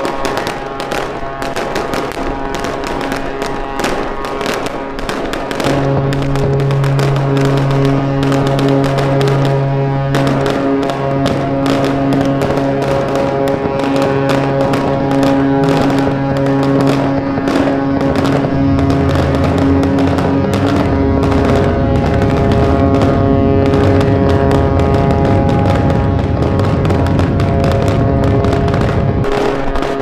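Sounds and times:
crackle of sharp pops: 0.0 - 30.0
music with held chords: 5.6 - 29.4.

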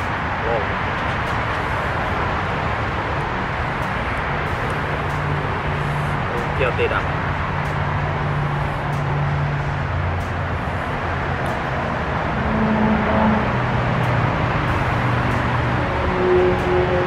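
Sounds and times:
low engine hum: 0.0 - 17.0
rushing noise: 0.0 - 17.0.

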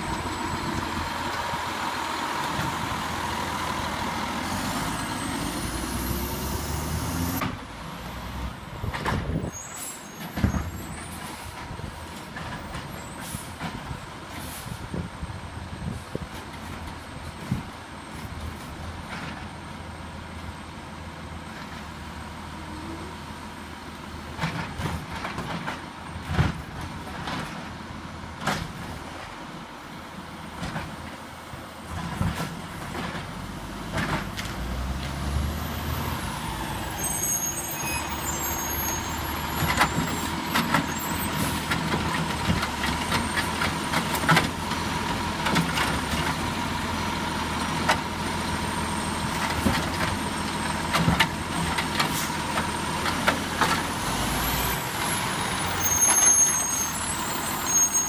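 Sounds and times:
garbage truck diesel engine: 0.0 - 58.0
air brake hisses and clunks: 9.1 - 11.8, 13.1 - 15.1.

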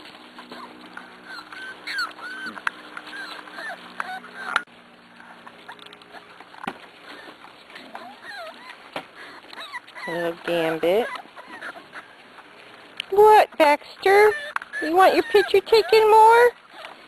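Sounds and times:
puppies whimpering and squeaking: 0.0 - 17.0.

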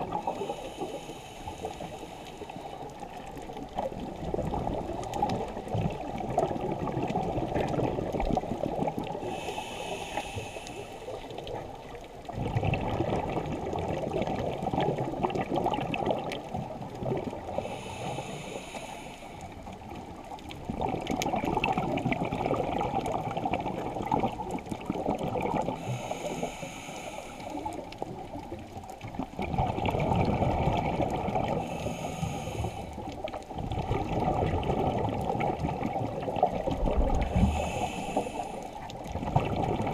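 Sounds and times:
exhaled bubbles rushing: 0.0 - 0.6, 3.4 - 9.2, 11.4 - 17.6, 20.2 - 25.8, 28.4 - 31.8, 33.0 - 37.8, 38.9 - 39.9
scuba regulator inhale hiss: 0.2 - 2.9, 9.2 - 11.4, 17.4 - 19.8, 25.7 - 27.9, 31.4 - 33.4, 37.2 - 38.9.

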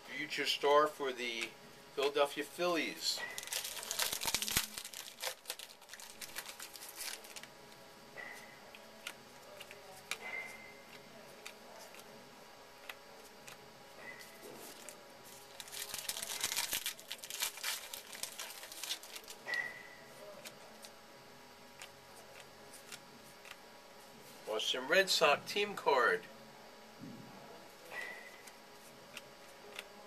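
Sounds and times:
wrapper crinkling and tearing: 3.2 - 7.5, 14.2 - 19.6.

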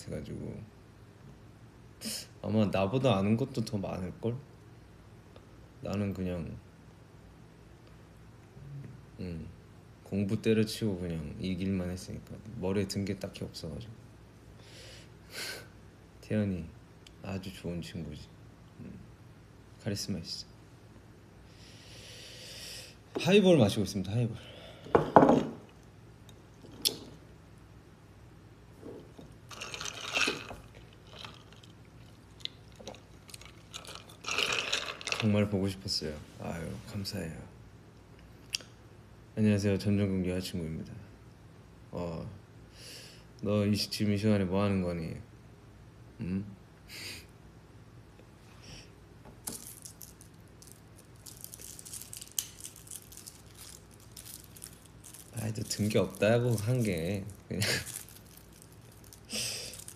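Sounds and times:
glass and ice clicks: 29.5 - 31.7
slurping through a straw: 29.5 - 31.7, 32.8 - 35.3.

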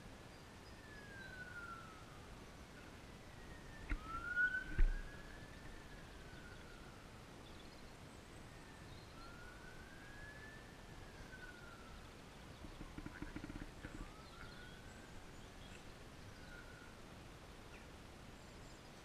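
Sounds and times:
siren wailing: 3.2 - 7.1, 8.5 - 12.0, 12.8 - 15.2.

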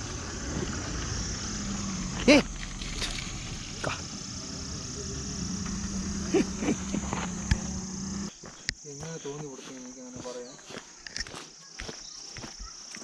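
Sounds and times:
low hum: 0.0 - 8.3
low rumble: 0.0 - 8.3
insect chirring: 0.0 - 13.0.

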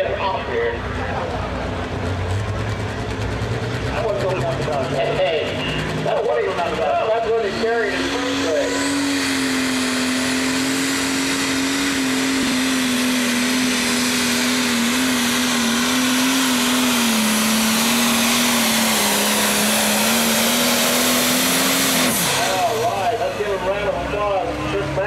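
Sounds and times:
diesel engine running flat out: 0.0 - 25.0.

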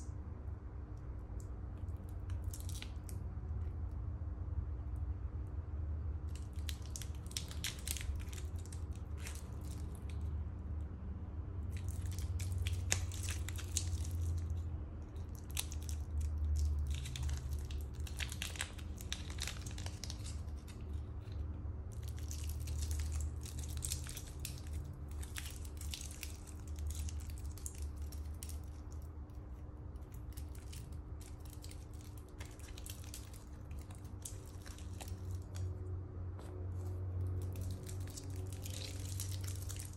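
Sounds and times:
steady low hum: 0.0 - 39.9
plastic film crinkling: 6.3 - 10.3, 11.7 - 29.1, 29.9 - 35.7, 36.8 - 39.9.

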